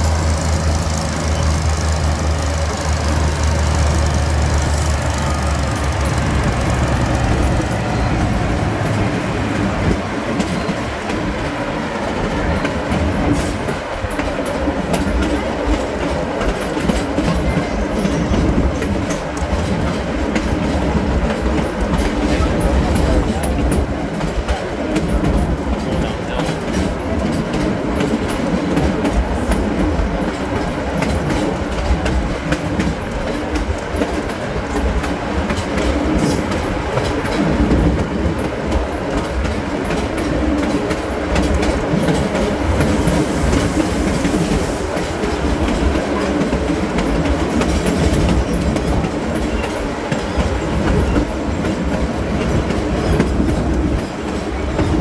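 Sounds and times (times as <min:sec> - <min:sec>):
diesel engines running hard: 0:00.0 - 0:09.8
wheels clattering over rail joints: 0:00.0 - 0:55.0.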